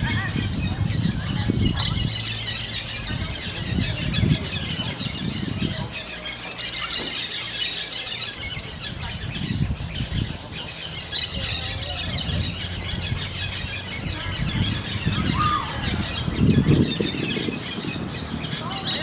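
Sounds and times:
parakeets calling: 0.0 - 19.0.

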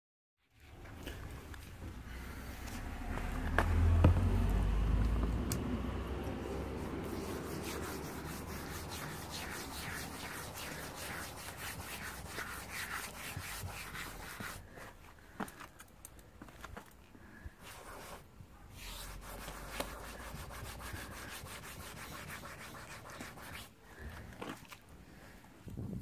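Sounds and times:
hand rubbing coated bumper: 6.3 - 15.0, 17.6 - 23.8.

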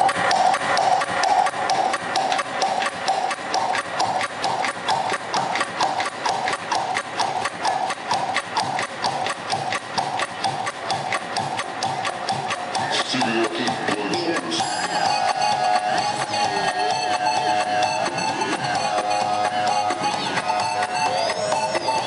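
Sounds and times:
dance music over sound system: 0.0 - 22.0.

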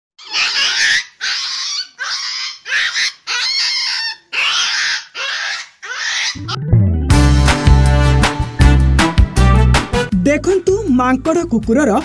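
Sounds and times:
puppy shrieking: 0.2 - 6.6.

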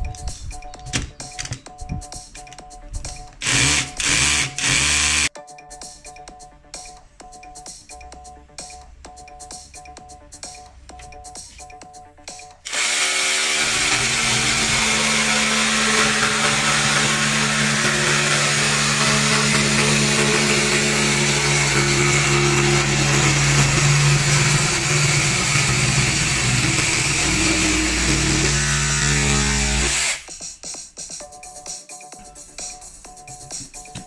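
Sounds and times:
drill motor running: 3.4 - 5.3, 12.7 - 30.3
jigsaw blade sawing wood: 3.4 - 5.3, 12.6 - 30.3.

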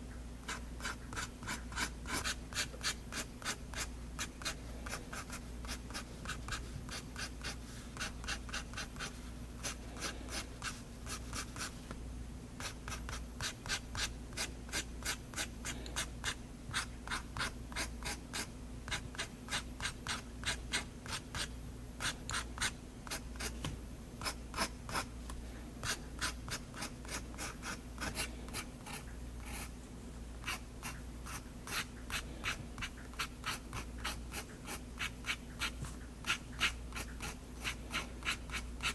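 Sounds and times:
pen scratching on paper: 0.5 - 11.7, 25.8 - 29.7, 30.4 - 38.9.

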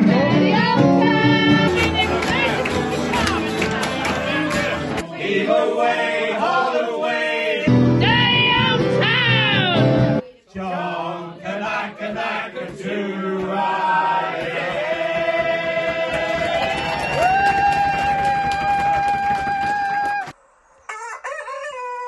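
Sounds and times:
men singing unaccompanied: 0.0 - 9.8, 10.5 - 16.5.

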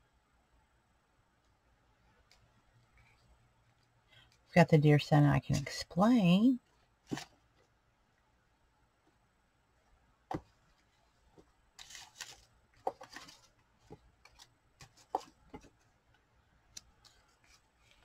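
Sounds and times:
paper rustling: 10.8 - 15.9, 17.0 - 18.0.

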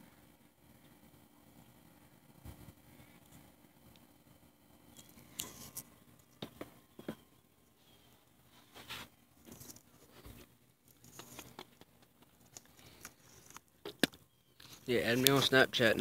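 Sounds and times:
faint rustling: 7.7 - 13.7.

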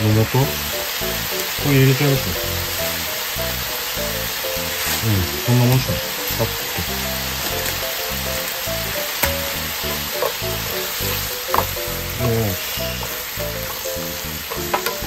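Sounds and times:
background music: 0.0 - 15.0
food sizzling in frying pan: 0.0 - 15.0
chopsticks clicking against pan: 9.2 - 10.4, 14.5 - 15.0.

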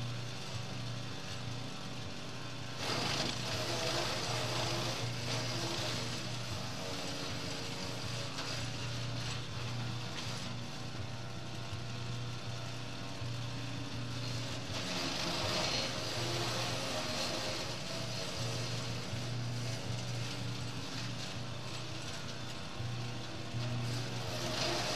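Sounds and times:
wood chipper engine running: 0.0 - 24.9
branches being shredded: 2.8 - 10.6, 23.6 - 24.9.

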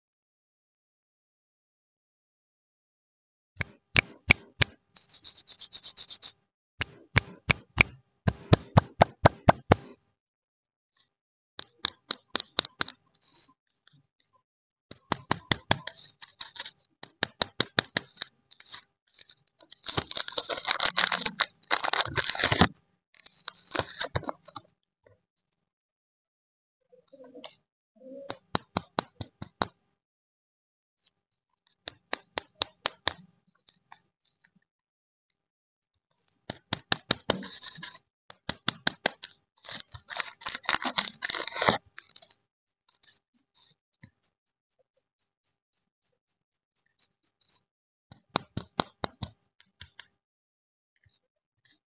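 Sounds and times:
plastic wrapper crackling: 19.7 - 22.7, 39.7 - 42.2.

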